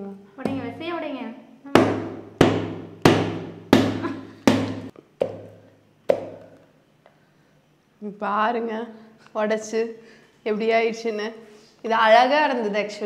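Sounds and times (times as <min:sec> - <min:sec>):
mallet knocking on chocolate shell: 0:01.8 - 0:06.5.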